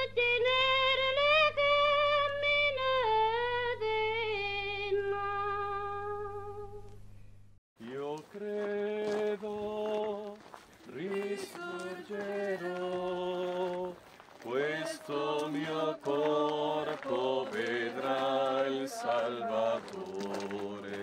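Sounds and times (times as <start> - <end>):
slow chant-like singing: 7.8 - 21.0.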